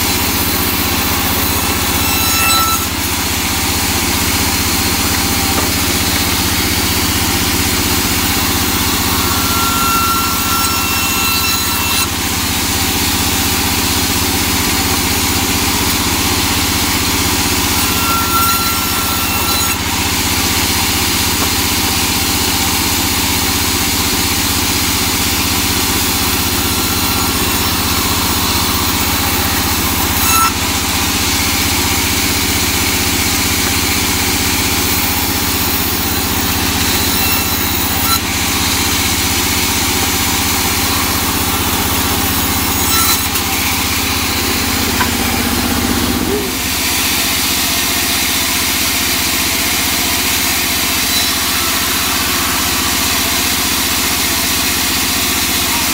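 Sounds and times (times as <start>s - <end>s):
band saw motor hum: 0.0s - 55.9s
board knocking: 5.2s - 6.5s.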